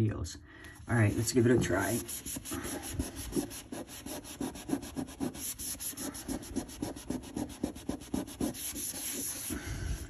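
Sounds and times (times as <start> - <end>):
paper towel scrubbing floor: 0.9 - 9.6.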